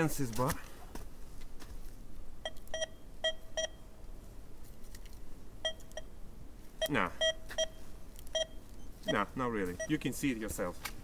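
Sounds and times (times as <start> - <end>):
metal detector beeps: 2.4 - 3.8, 5.6 - 6.1, 6.8 - 10.1.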